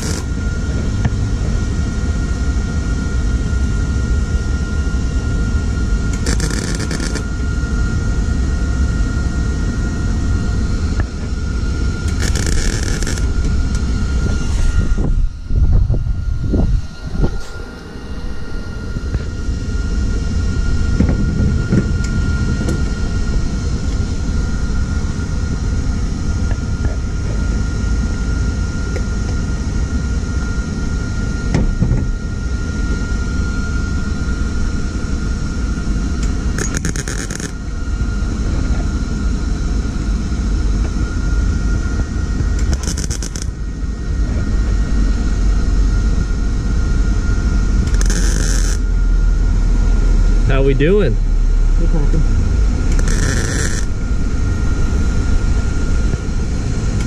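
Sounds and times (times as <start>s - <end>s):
welder arc crackling: 0.0s - 0.3s, 6.2s - 7.2s, 12.1s - 13.3s, 36.6s - 37.6s, 42.6s - 43.5s, 47.9s - 48.8s, 52.9s - 53.9s
faint high whine: 0.0s - 57.0s.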